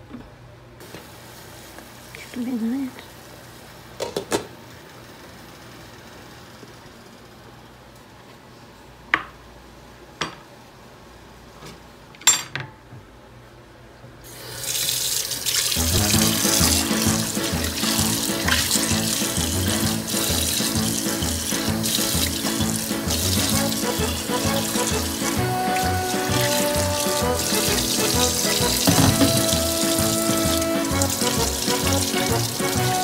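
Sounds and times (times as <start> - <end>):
kitchen tap running: 14.2 - 33.0
background music with steady beat: 15.8 - 33.0.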